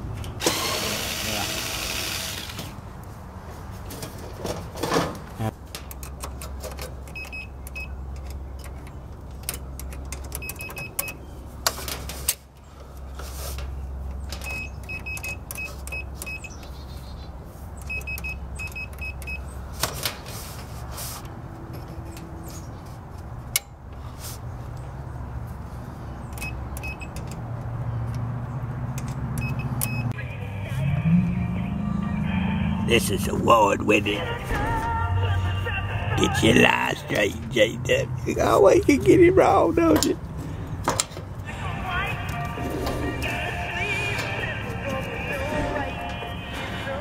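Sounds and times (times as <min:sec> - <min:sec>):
motor humming: 0:00.4 - 0:02.7.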